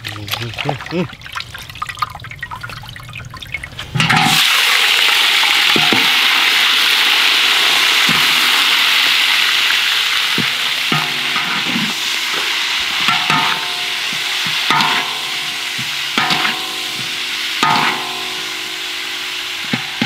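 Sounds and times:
geckos sizzling in hot oil: 3.9s - 20.0s.

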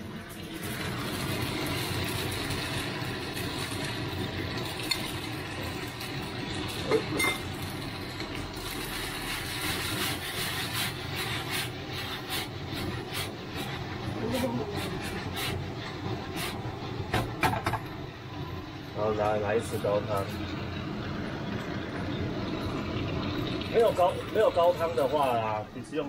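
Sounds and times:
food sizzling in a pan: 0.0s - 26.0s
pan clattering: 6.8s - 7.5s
spoon clinking against pan: 6.9s - 7.5s.

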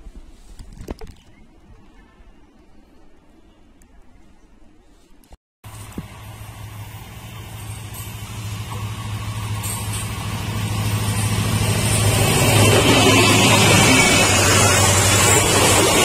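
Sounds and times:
diesel locomotive engine droning: 5.7s - 16.0s
wheels rushing on rails: 5.7s - 16.0s.

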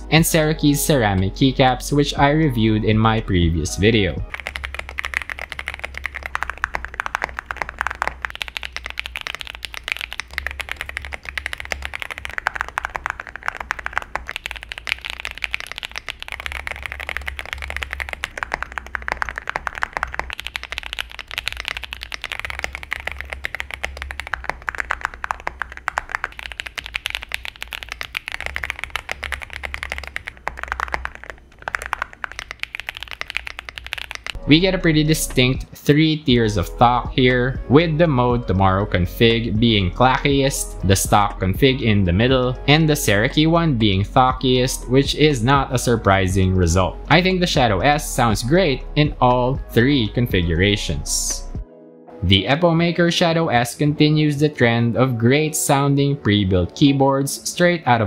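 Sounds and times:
fast typing on mechanical keyboard: 3.0s - 34.4s.

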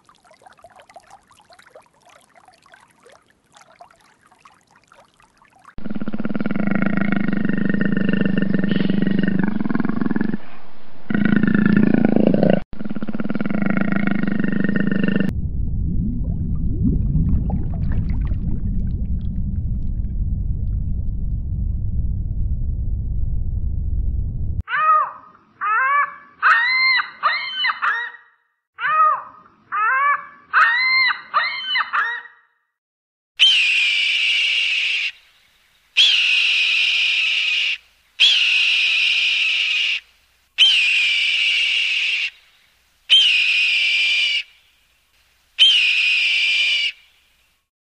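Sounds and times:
bubbling: 0.0s - 10.4s, 11.1s - 21.7s
underwater low rumble: 5.8s - 24.6s.

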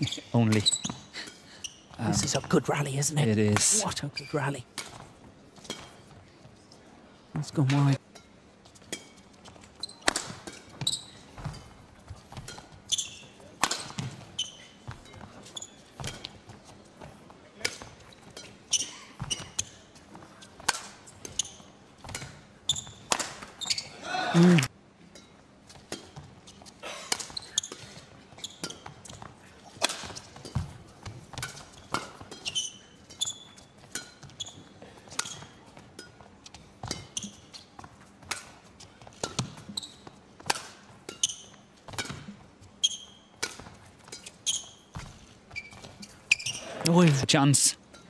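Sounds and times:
shoe squeaks on court: 0.0s - 2.5s, 9.6s - 11.7s, 12.4s - 16.3s, 18.1s - 19.8s, 22.7s - 24.0s, 27.2s - 29.2s, 31.8s - 35.6s, 36.9s - 37.8s, 39.3s - 40.2s, 41.1s - 41.7s, 42.8s - 43.4s, 44.1s - 46.9s
racket striking shuttlecock: 10.0s - 10.6s, 13.6s - 14.0s, 40.4s - 41.3s.

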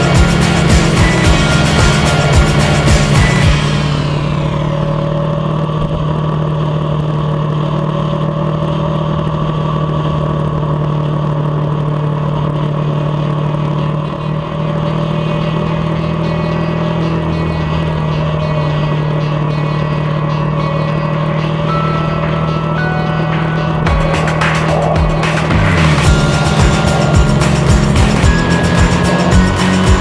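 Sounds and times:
motorcycle engine cruising: 0.0s - 30.0s.

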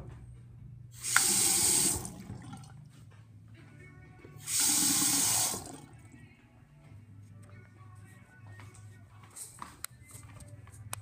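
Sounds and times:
faucet water running into sink: 1.0s - 2.6s, 4.5s - 5.8s.

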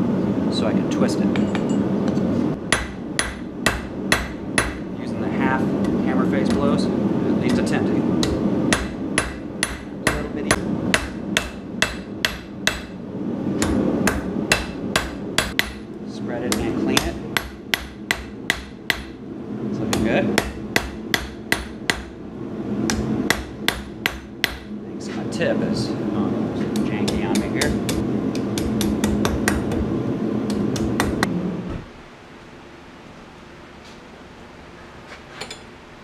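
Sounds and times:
hammer striking steel on anvil: 1.3s - 1.8s, 2.7s - 4.8s, 7.5s - 13.0s, 13.6s - 15.9s, 16.5s - 19.2s, 19.9s - 22.1s, 22.9s - 24.7s.

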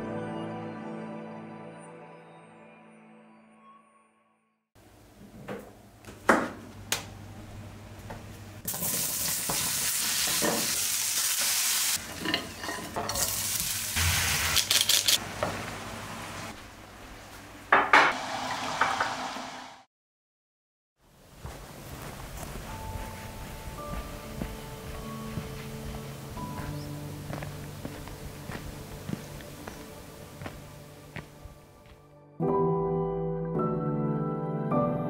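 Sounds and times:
pans and utensils clattering: 8.7s - 10.8s, 12.0s - 13.5s
onions sizzling in oil: 8.7s - 15.2s.

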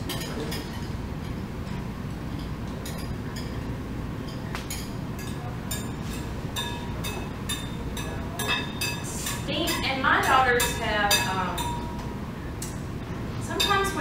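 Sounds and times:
utensil clinking on glass bowl: 4.2s - 12.0s.

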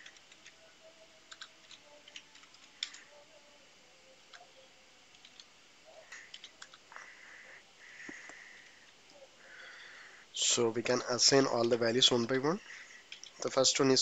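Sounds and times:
keyboard typing clicks: 0.0s - 0.6s, 1.3s - 3.1s, 5.1s - 5.5s, 6.1s - 6.8s.

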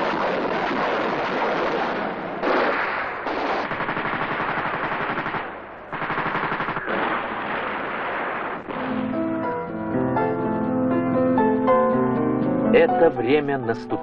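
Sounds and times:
machine-gun fire: 0.0s - 9.2s.

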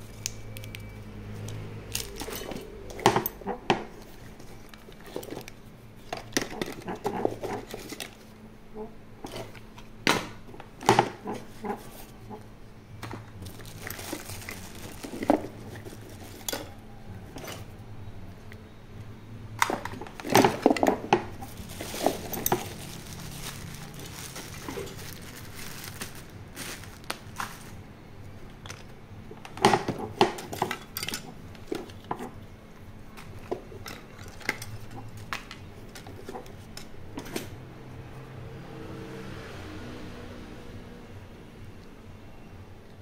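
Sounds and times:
small hard objects clinking: 13.4s - 16.8s, 19.9s - 27.8s.

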